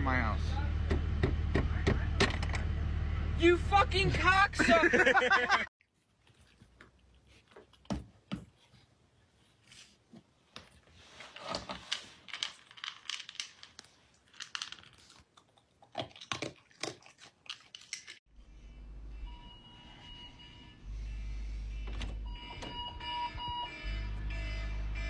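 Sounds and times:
raccoon rummaging in plastic jar: 11.0 - 15.2.

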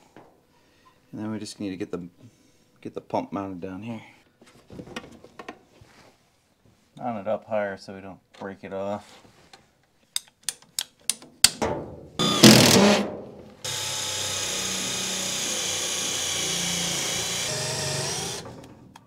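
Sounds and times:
cordless drill running: 12.2 - 13.0, 13.6 - 18.6.

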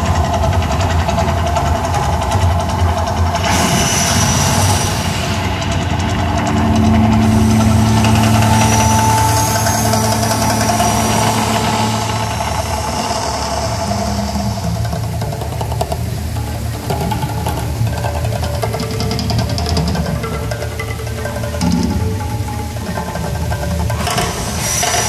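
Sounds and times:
low rumble: 0.0 - 25.0
held tones: 4.2 - 15.3.

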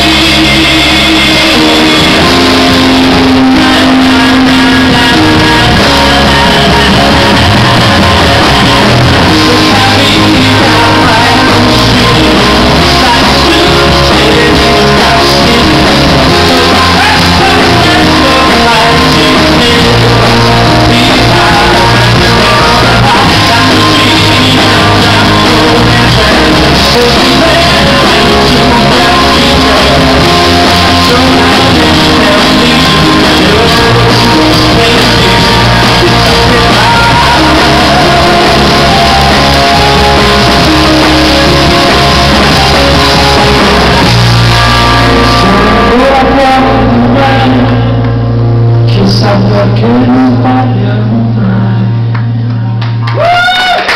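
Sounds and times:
man singing into microphone: 0.0 - 53.5
live rock band playing: 0.0 - 53.9
steady bass line: 0.0 - 53.9.

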